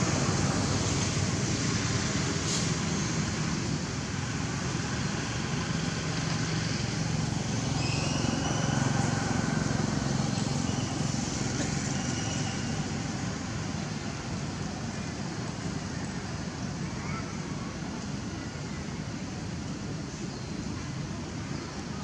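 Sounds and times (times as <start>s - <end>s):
low rumble with hiss: 0.0s - 22.0s
faint high chirps: 7.6s - 9.2s.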